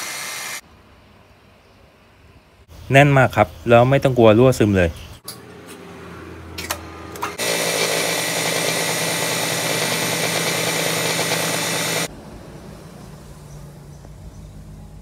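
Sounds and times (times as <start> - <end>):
milling machine cutting metal: 7.4 - 12.1.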